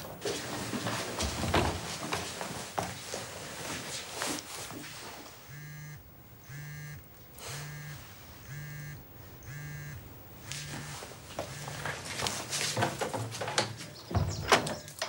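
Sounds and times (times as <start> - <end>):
low buzz: 5.4 - 11.8
mobile phone ringing: 5.5 - 12.0.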